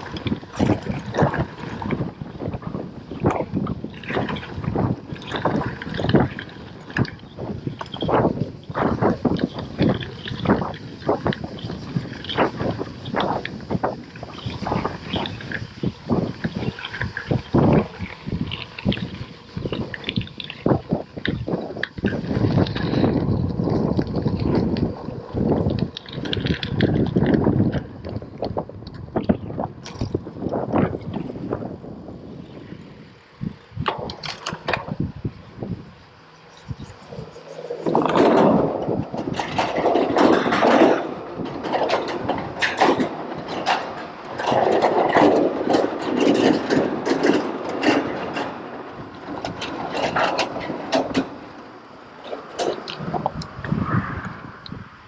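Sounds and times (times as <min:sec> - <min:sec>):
tyres rolling on tarmac: 0:00.0 - 0:54.2
bike tyres crunching on gravel: 0:00.0 - 0:54.8.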